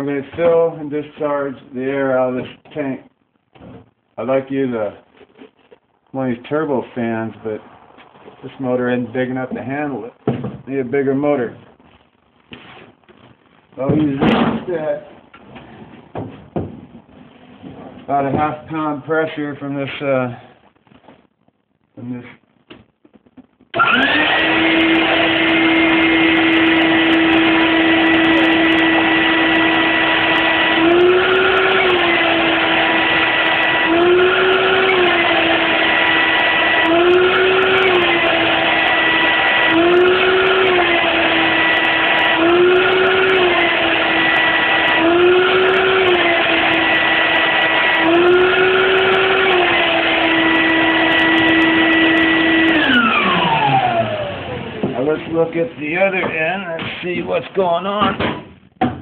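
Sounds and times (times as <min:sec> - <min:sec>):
shop vac motor whining: 0:23.7 - 0:56.4
motor winding down: 0:23.8 - 0:54.9.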